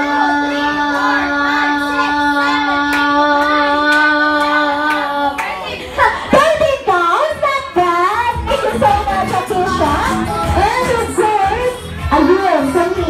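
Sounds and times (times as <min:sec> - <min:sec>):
girl singing into a microphone: 0:00.0 - 0:06.6
backing music: 0:00.0 - 0:13.0.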